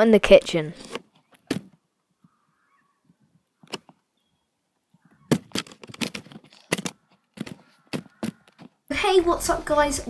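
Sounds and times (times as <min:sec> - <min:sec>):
camera handling knocks and rubbing: 0:05.2 - 0:08.8.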